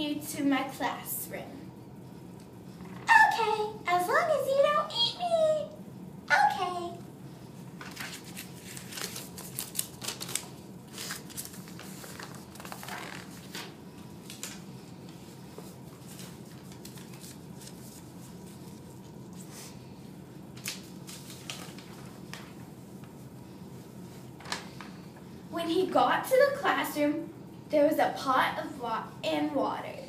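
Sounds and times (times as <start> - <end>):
paper rustling: 7.8 - 19.8, 20.5 - 23.2.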